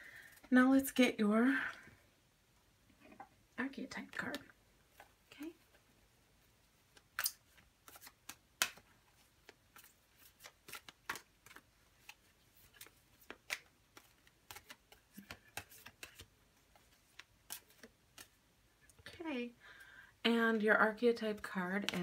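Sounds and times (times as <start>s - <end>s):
cards being shuffled: 6.9s - 19.1s.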